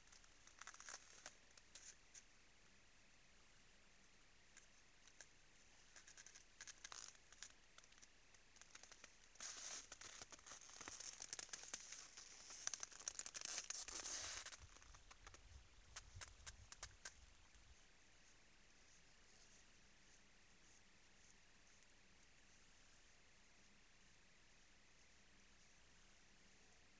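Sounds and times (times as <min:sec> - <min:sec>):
small clicks: 0:00.0 - 0:02.3, 0:04.5 - 0:17.7.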